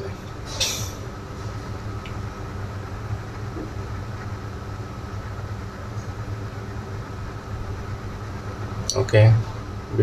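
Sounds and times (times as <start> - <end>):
low background hum: 0.0 - 10.0
faint constant higher tone: 1.8 - 10.0.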